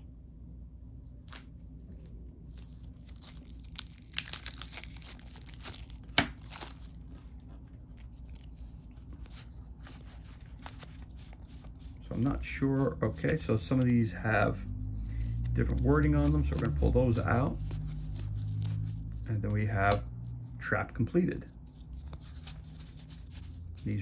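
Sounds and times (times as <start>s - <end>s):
plastic wrapping tearing: 1.2s - 12.4s.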